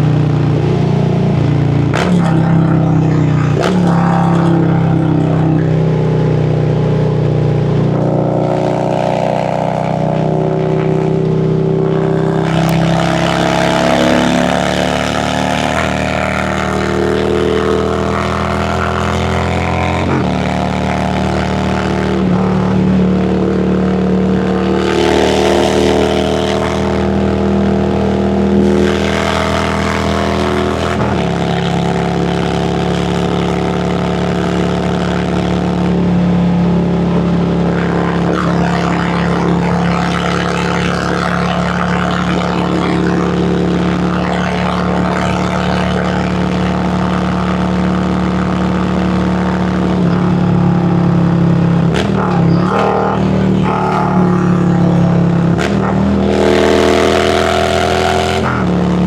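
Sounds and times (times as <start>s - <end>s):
motorcycle engine at speed: 0.0s - 59.0s.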